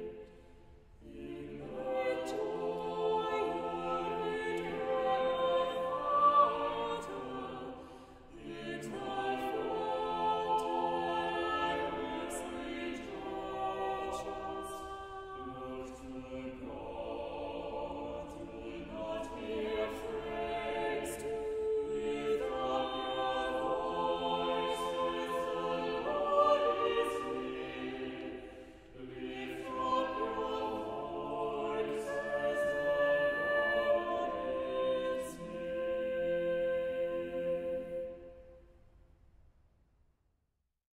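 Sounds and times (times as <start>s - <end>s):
choir singing sustained chords: 0.0s - 39.1s.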